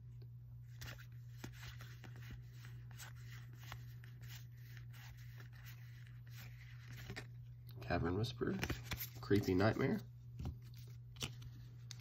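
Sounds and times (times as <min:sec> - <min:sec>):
steady low hum: 0:00.0 - 0:12.0
cards sliding and clicking: 0:00.7 - 0:07.3, 0:08.5 - 0:09.6, 0:10.4 - 0:12.0.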